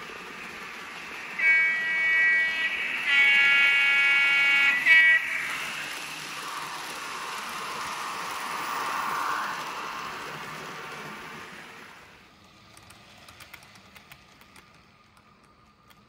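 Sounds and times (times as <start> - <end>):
model train rolling: 0.0 - 16.0
model train horn blasts: 1.3 - 6.0.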